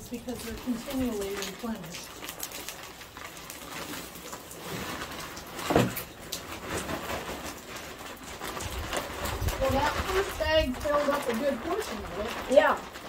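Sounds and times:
plastic bag rustling: 0:00.0 - 0:13.0
potting soil pouring: 0:00.0 - 0:13.0
thump: 0:05.7 - 0:06.0.

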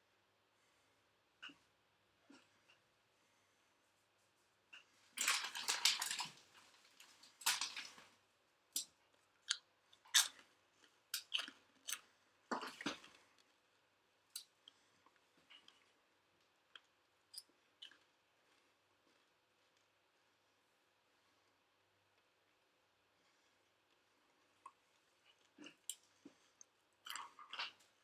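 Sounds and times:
person crunching a snack: 0:08.8 - 0:13.5, 0:25.3 - 0:28.0.

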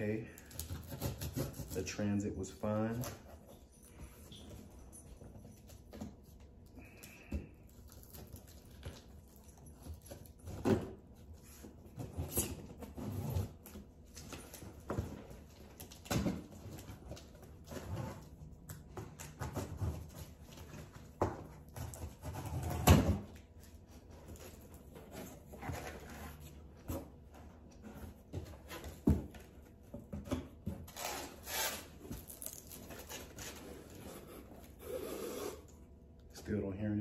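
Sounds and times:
knife cutting cardboard box: 0:00.4 - 0:02.0
cardboard scraping and rustling: 0:24.0 - 0:34.8.

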